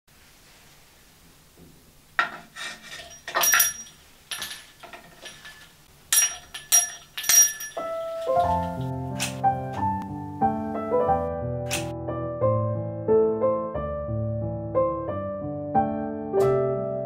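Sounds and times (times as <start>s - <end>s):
small brass bell jingling: 3.0s - 8.8s
metal spoon striking bell: 6.1s - 7.8s
piano music: 7.7s - 17.0s.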